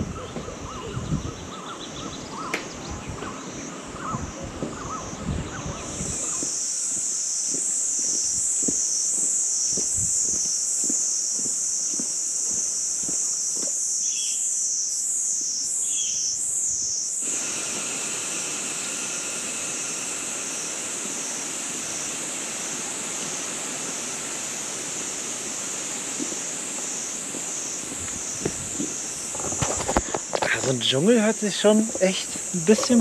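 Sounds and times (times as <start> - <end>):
high-pitched insect chorus: 0.0 - 33.0
low hiss: 0.0 - 33.0.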